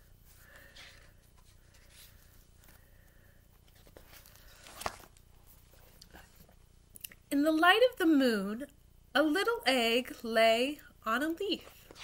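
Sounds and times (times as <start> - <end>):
book pages rustling: 0.2 - 6.6, 11.5 - 12.0.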